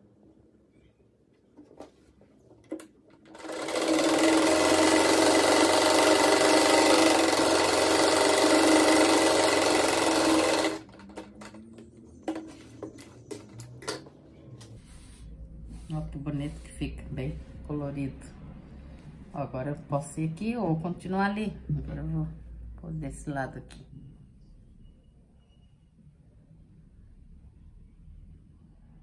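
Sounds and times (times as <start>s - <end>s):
sewing machine stitching: 2.7s - 11.6s.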